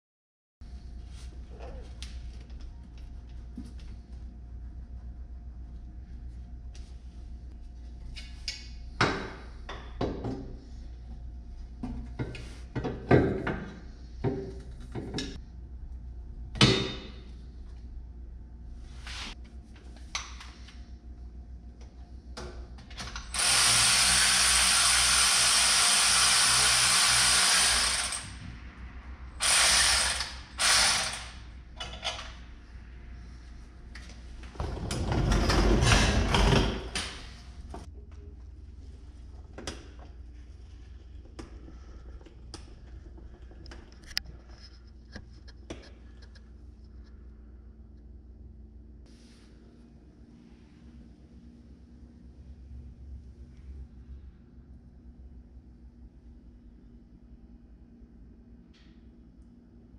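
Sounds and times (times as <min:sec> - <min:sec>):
power tool running: 0:23.3 - 0:28.4, 0:29.4 - 0:31.5.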